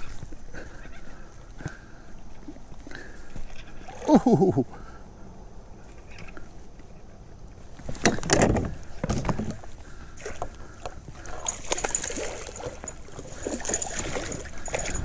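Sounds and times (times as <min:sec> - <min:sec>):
water sloshing: 0:07.6 - 0:15.0.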